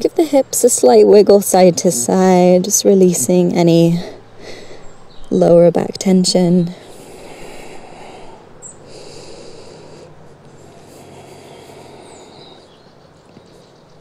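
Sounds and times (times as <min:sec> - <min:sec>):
low steady hiss: 0:00.0 - 0:14.0
person breathing slowly: 0:04.0 - 0:05.0, 0:06.7 - 0:12.8.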